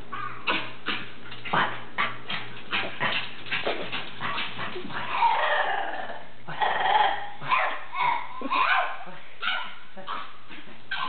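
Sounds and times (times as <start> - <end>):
dog yipping and grunting: 4.9 - 11.0
dog whining howl: 5.1 - 7.7.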